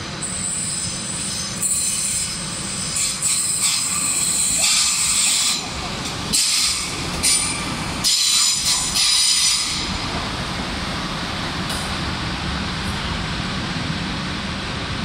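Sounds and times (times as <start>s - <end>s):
train rumbling: 0.0s - 15.0s
train brakes squealing: 0.1s - 5.7s, 6.3s - 9.9s.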